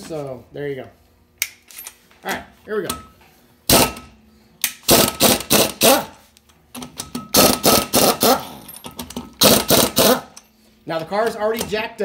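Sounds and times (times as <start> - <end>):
pneumatic impact wrench bursts: 3.7 - 4.1, 4.8 - 6.2, 7.3 - 8.7, 9.3 - 10.4.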